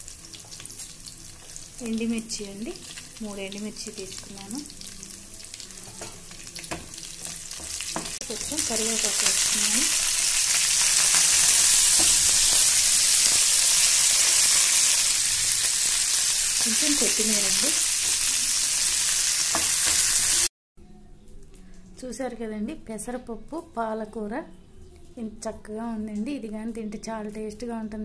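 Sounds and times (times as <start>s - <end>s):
loud sizzle in oil: 0.0s - 20.5s
spices crackling in hot oil: 0.0s - 20.5s.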